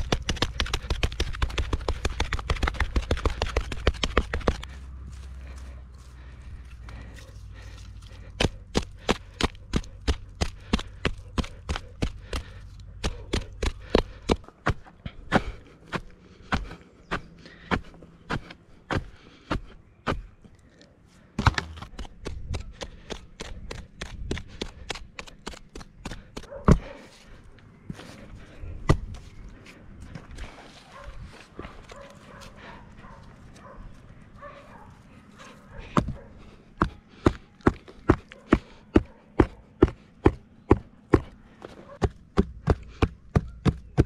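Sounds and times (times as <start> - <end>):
soil scraping and rustling: 0.0 - 9.9, 26.8 - 35.7
sticks knocking into stony soil: 21.4 - 27.0.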